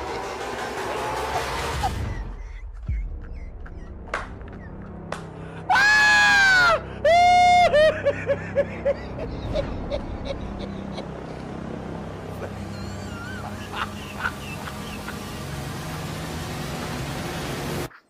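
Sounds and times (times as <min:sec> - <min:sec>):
woman screaming: 0:05.7 - 0:07.8.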